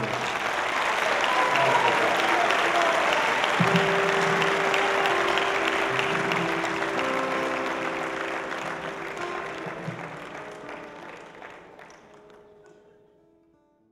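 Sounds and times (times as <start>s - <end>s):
audience applauding: 0.0s - 13.1s
music of held notes: 3.4s - 13.2s.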